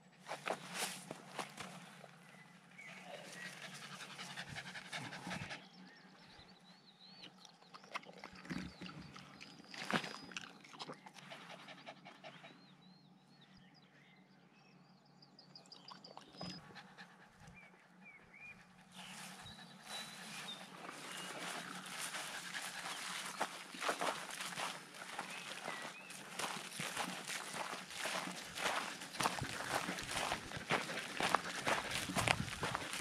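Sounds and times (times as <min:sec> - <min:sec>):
dog panting: 0:02.9 - 0:05.8, 0:11.1 - 0:12.8, 0:16.5 - 0:24.6, 0:26.3 - 0:33.0.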